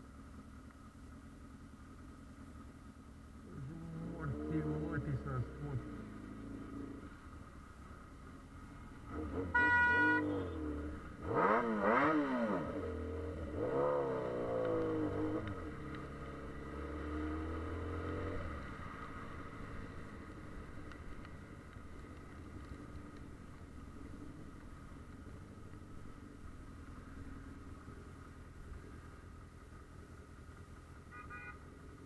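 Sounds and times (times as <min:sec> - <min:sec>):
motorcycle engine accelerating: 0:00.0 - 0:31.1
horn beep: 0:09.4 - 0:10.7, 0:31.1 - 0:31.6.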